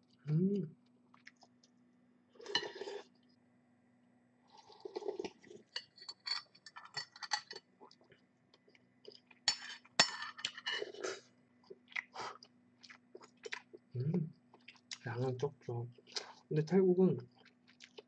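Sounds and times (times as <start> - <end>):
chewing with wet mouth clicks: 1.1 - 1.8, 11.6 - 13.9, 14.5 - 15.0, 17.3 - 18.0
drinking soup broth: 2.4 - 3.1.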